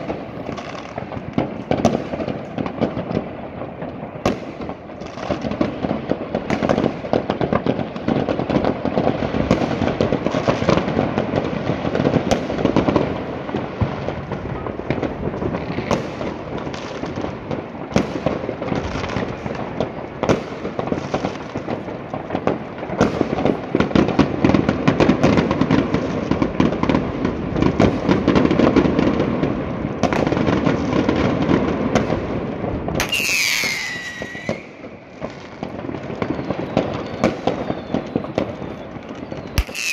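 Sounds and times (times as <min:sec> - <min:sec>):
firecracker bangs: 0:00.0 - 0:39.9
fireworks crackling and popping: 0:00.0 - 0:39.9
falling firework whistle: 0:33.0 - 0:39.9.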